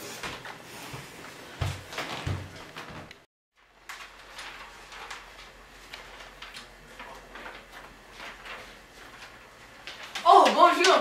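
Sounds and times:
soft footsteps: 0:00.1 - 0:03.3.

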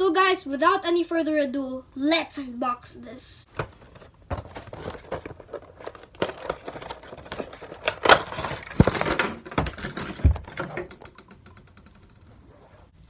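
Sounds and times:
cardboard and plastic crinkling: 0:03.5 - 0:11.1.

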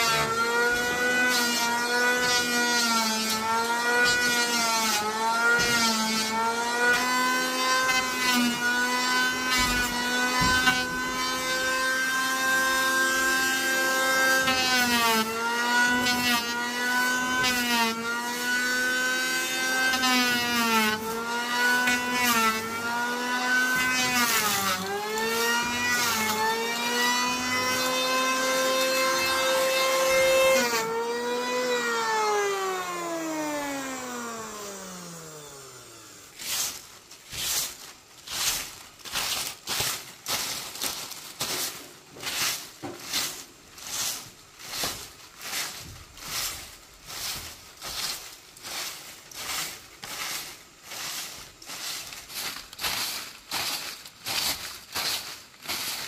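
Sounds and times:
power tool motor whining: 0:00.0 - 0:36.6.

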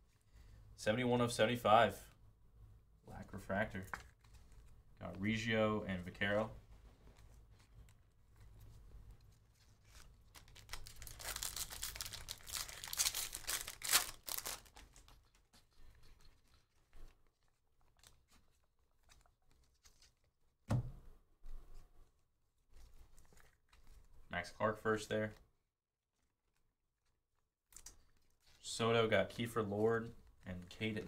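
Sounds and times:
cards rustling and clicking: 0:07.0 - 0:20.3
foil wrapper tearing and crinkling: 0:09.8 - 0:15.5
thump: 0:20.7 - 0:21.1.

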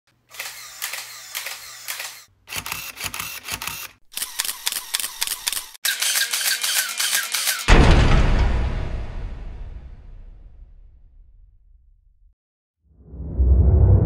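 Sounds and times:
camera shutters clicking: 0:00.3 - 0:07.7.

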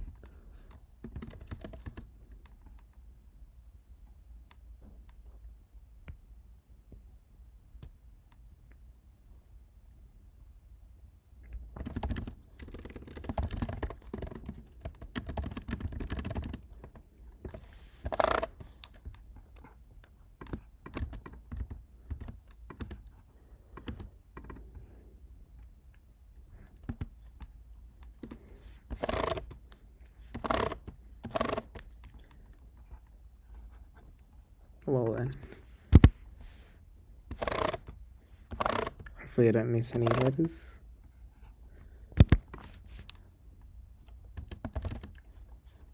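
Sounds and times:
typing on computer keyboard: 0:00.7 - 0:02.8, 0:11.7 - 0:24.8, 0:26.7 - 0:32.4, 0:37.3 - 0:39.1, 0:39.8 - 0:40.4, 0:42.2 - 0:42.8, 0:44.0 - 0:45.3.

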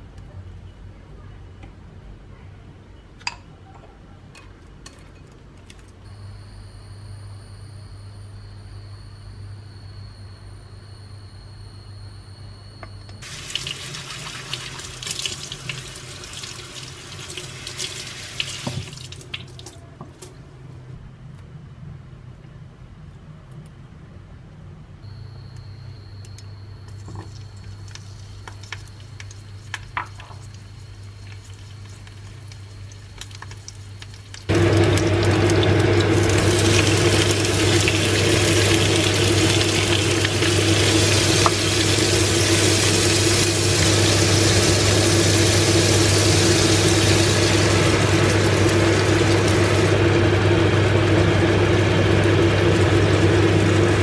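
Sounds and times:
prawns sizzling in a pan: 0:13.2 - 0:19.2, 0:27.0 - 0:54.0.

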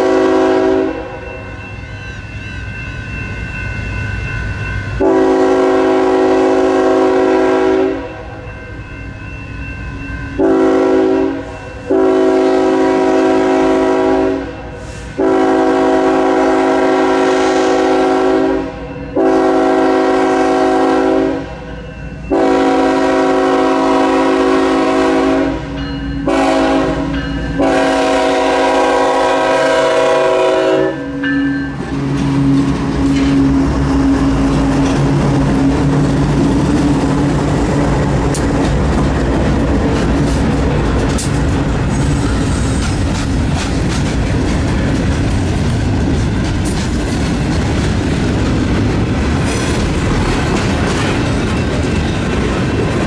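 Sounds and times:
train air horn blasts: 0:00.0 - 0:01.3, 0:05.0 - 0:08.4, 0:10.4 - 0:21.7, 0:22.3 - 0:34.3.

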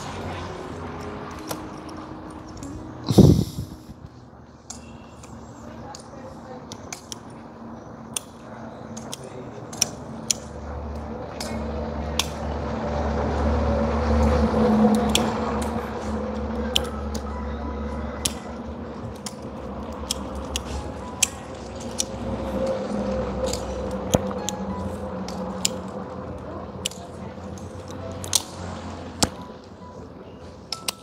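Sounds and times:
hand tool clicking and snipping: 0:08.1 - 0:10.6, 0:11.3 - 0:12.4, 0:14.9 - 0:15.8, 0:16.7 - 0:17.2, 0:19.1 - 0:22.7, 0:23.4 - 0:24.6, 0:25.3 - 0:26.0, 0:26.8 - 0:28.6, 0:30.7 - 0:31.0.

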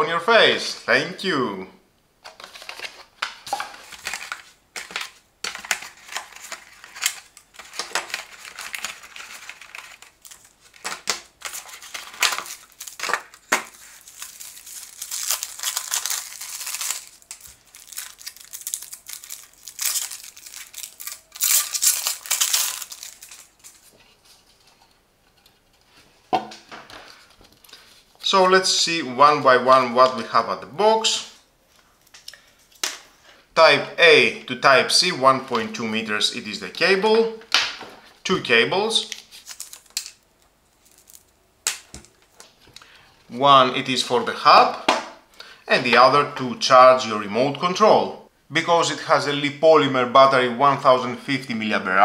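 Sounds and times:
plastic wrapping crinkling: 0:02.2 - 0:24.8, 0:39.0 - 0:42.9.

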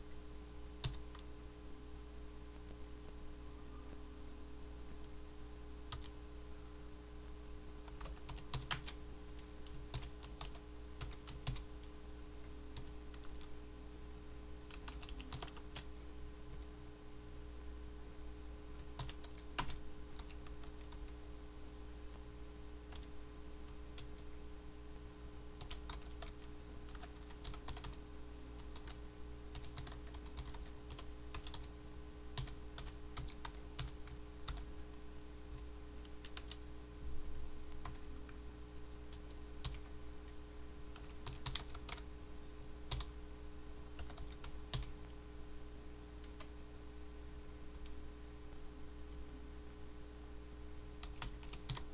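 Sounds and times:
low electrical hum: 0:00.0 - 0:51.9
typing on computer keyboard: 0:00.8 - 0:01.3, 0:07.8 - 0:11.9, 0:14.7 - 0:15.9, 0:18.8 - 0:21.2, 0:25.6 - 0:28.0, 0:28.6 - 0:31.7, 0:32.4 - 0:34.7, 0:36.1 - 0:36.6, 0:39.1 - 0:39.9, 0:41.0 - 0:42.0, 0:42.9 - 0:43.1, 0:44.0 - 0:45.0, 0:51.0 - 0:51.9.

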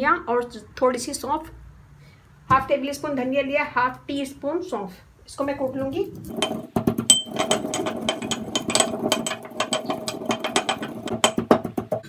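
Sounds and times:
brass mortar and pestle pounding: 0:05.8 - 0:12.0.

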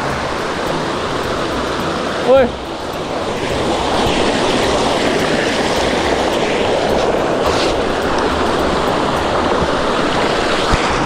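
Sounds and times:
stream rushing over stones: 0:00.0 - 0:11.0.

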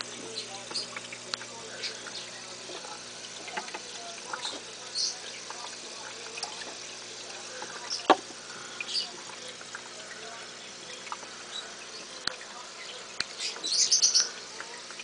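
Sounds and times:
aquarium pump hum: 0:00.0 - 0:15.0
water trickling and bubbling: 0:00.0 - 0:15.0.

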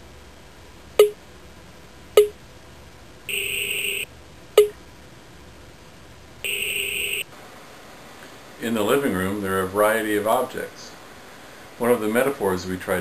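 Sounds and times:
buzzy electronic beep: 0:03.3 - 0:04.7, 0:06.4 - 0:07.3
short sharp electronic blips: 0:03.3 - 0:04.7, 0:06.5 - 0:07.2.

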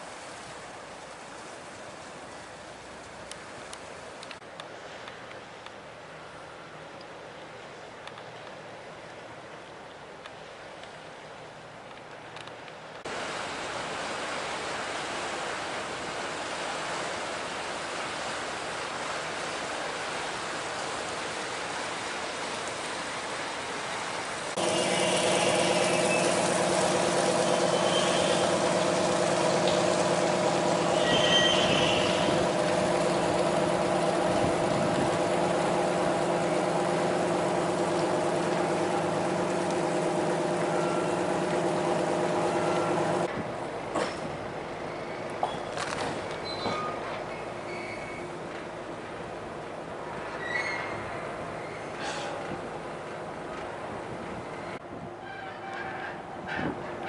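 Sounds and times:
diesel engine humming: 0:24.5 - 0:45.4.

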